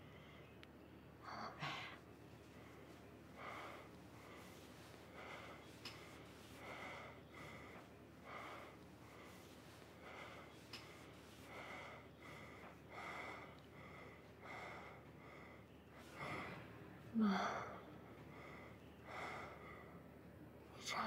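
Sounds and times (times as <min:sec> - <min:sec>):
person breathing faintly: 0:00.0 - 0:20.1
room hiss: 0:01.3 - 0:16.5.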